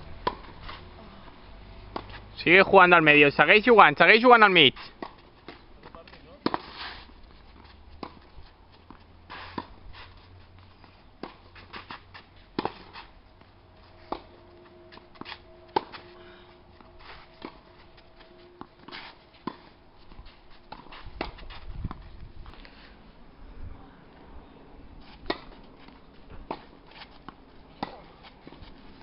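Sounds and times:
tennis balls struck by racquets: 0.1s - 0.6s, 1.8s - 2.3s, 5.0s - 9.8s, 11.2s - 16.2s, 25.2s - 29.0s
tennis balls bouncing on clay: 4.3s - 9.8s, 10.5s - 16.1s, 25.2s - 29.0s.

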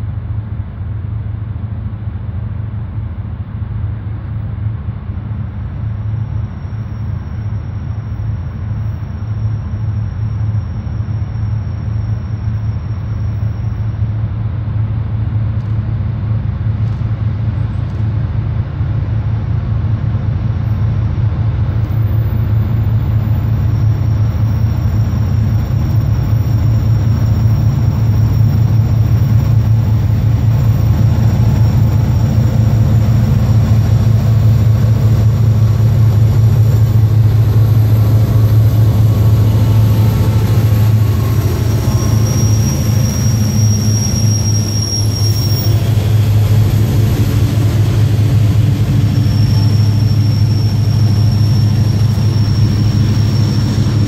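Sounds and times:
diesel locomotive engine drone: 0.0s - 54.0s.

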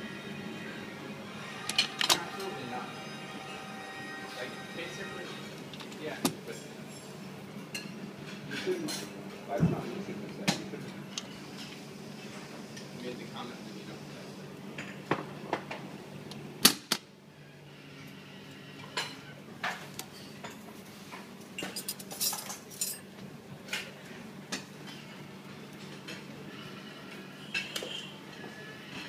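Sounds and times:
dishes and utensils clinking: 6.5s - 9.4s, 18.8s - 23.1s, 27.4s - 29.0s.

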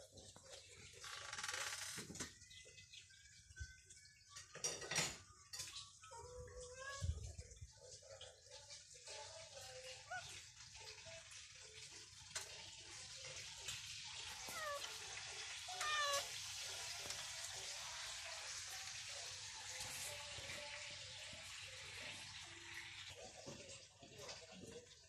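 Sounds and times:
cat meowing: 14.2s - 16.9s.

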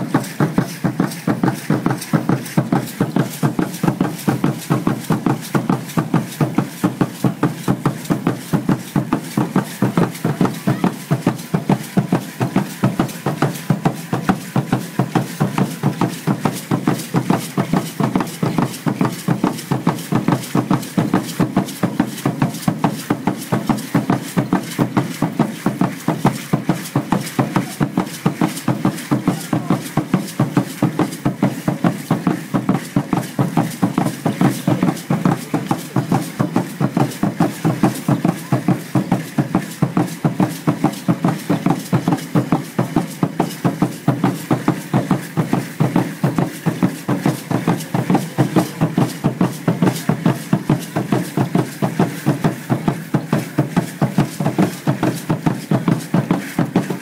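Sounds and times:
seed-pod ankle rattles shaking: 0.0s - 57.0s
steady drumming: 0.0s - 57.0s.

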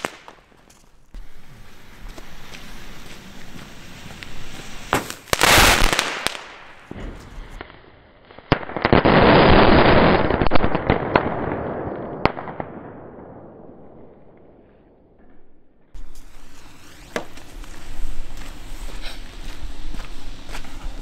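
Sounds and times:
ground firework spraying sparks: 1.1s - 7.6s, 16.0s - 21.0s.

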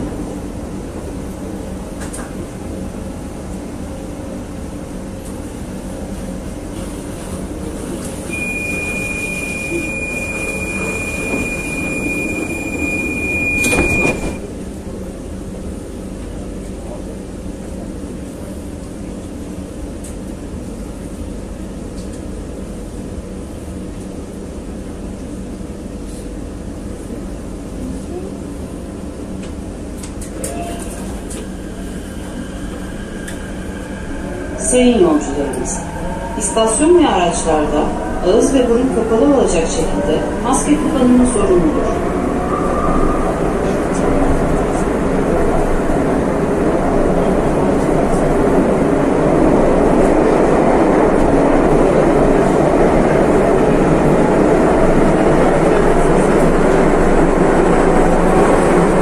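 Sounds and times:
metro train rumble: 0.0s - 59.0s
high warning beep: 8.3s - 14.4s
train doors shutting thud: 13.0s - 14.5s.

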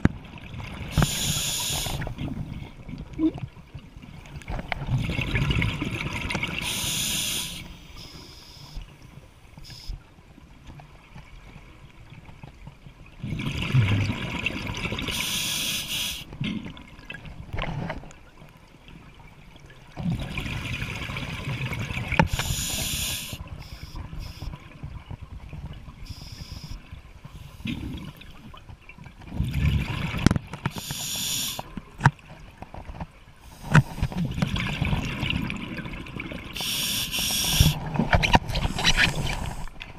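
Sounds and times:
hissing regulator inhale: 1.0s - 2.1s, 6.6s - 8.8s, 15.1s - 16.3s, 22.3s - 24.5s, 30.7s - 31.6s, 36.6s - 37.8s
exhaled bubbles gushing: 4.5s - 6.9s, 13.2s - 15.2s, 29.3s - 31.6s, 33.7s - 39.8s.

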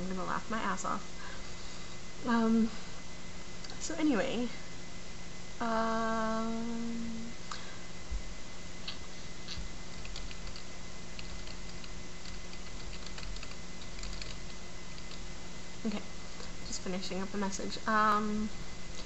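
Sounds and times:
electrical hum: 0.0s - 19.0s
woman humming: 5.6s - 7.6s.

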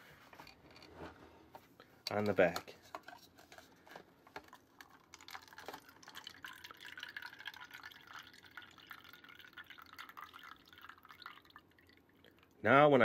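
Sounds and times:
liquid trickling into paper cup: 4.4s - 12.6s.

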